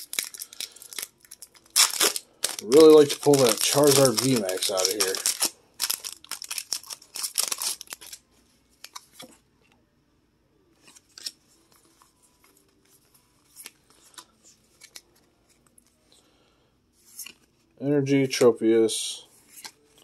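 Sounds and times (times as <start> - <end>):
cards rustling and clicking: 0.0 - 8.2, 8.8 - 9.3, 13.4 - 16.0, 17.0 - 17.6, 19.4 - 20.0
foil wrapper tearing and crinkling: 0.0 - 8.2.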